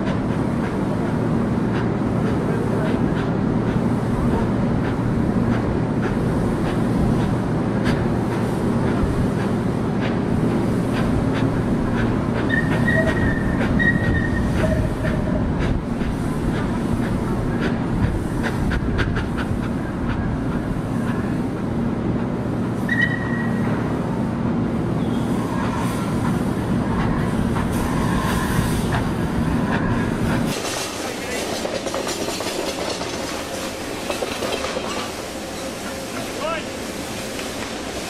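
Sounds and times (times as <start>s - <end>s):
steam locomotive hiss: 0.0s - 24.3s, 24.9s - 38.0s
hiss of escaping steam: 27.2s - 29.3s, 30.2s - 38.0s
sharp clicks and clanks: 30.5s - 35.1s.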